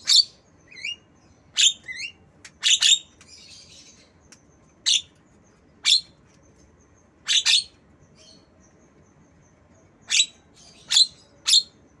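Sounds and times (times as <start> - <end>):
myna bird shrill chirps: 10.0 - 11.8.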